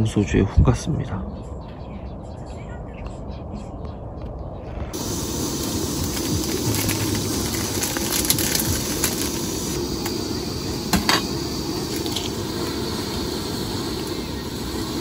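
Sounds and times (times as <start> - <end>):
gas stove burner hissing: 4.9 - 15.0.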